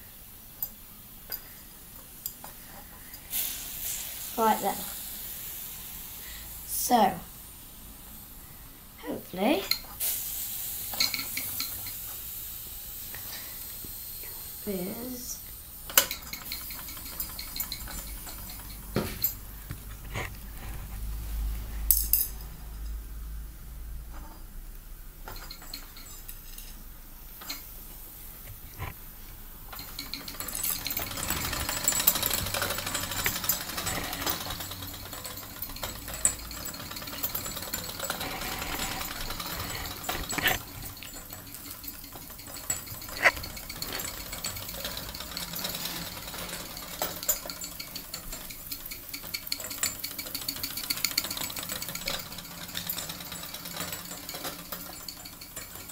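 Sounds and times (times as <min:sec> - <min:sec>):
toy steam engine rattling: 0:00.6 - 0:07.4, 0:09.4 - 0:20.8, 0:25.2 - 0:26.8, 0:29.6 - 0:55.9.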